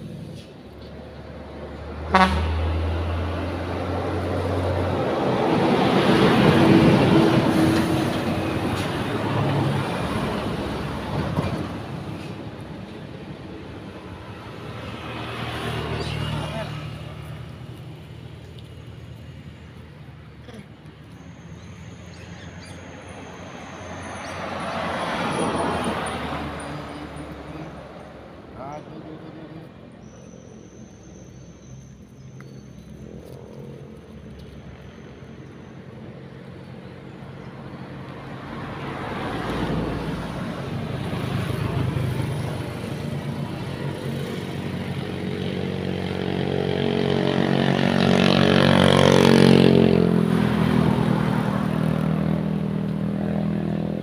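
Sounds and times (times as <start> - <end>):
road traffic passing: 0.0 - 54.0
truck engine and tyres: 0.0 - 54.0
car driving past: 21.6 - 31.9.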